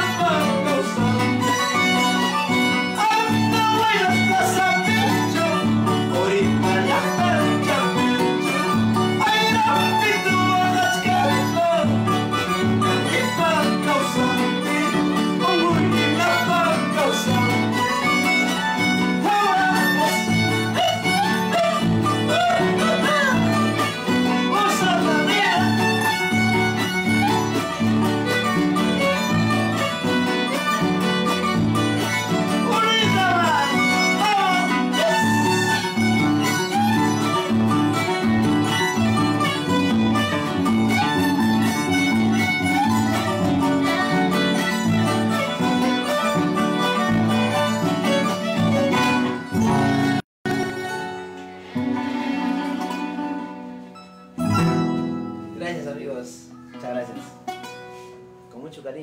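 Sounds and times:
violin melody: 0:00.0 - 0:56.0, 0:57.4 - 0:58.3
strummed acoustic guitar: 0:00.0 - 0:58.7
harp plucked bass: 0:52.6 - 0:55.6.

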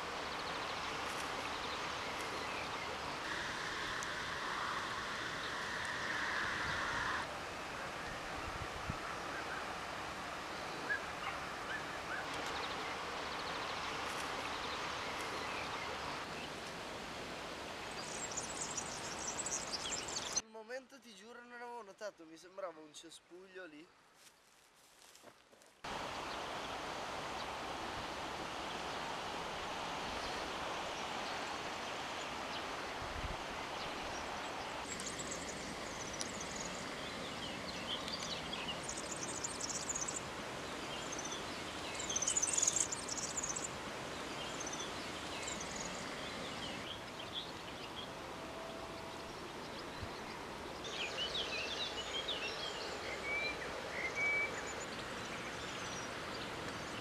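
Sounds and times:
outdoor background noise: 0:00.0 - 0:57.0
small birds chirping: 0:17.8 - 0:20.4, 0:33.7 - 0:48.1.

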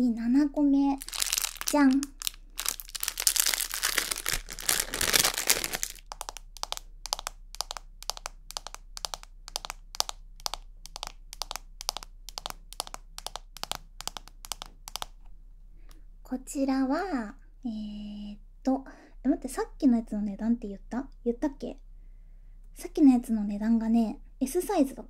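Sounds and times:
plastic bag crinkling: 0:01.0 - 0:15.1.

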